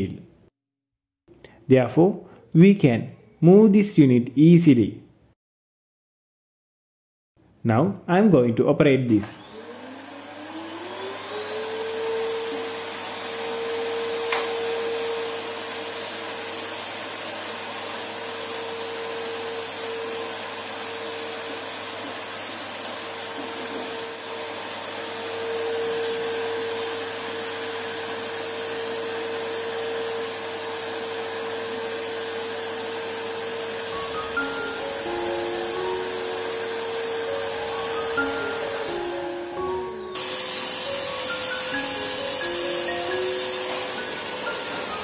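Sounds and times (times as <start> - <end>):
vacuum cleaner whining: 9.2 - 45.0.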